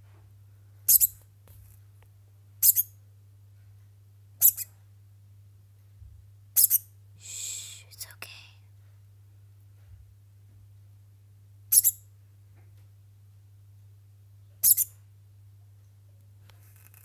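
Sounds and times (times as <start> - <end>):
degu chirping: 0.9 - 1.2, 2.6 - 3.0, 4.4 - 4.7, 6.6 - 6.8, 11.7 - 12.0, 14.6 - 15.0.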